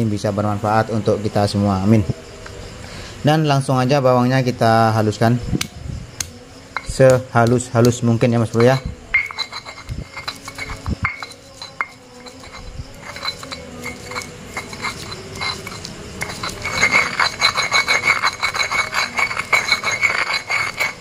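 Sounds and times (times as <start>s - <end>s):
stone pestle grinding in mortar: 6.8s - 21.0s.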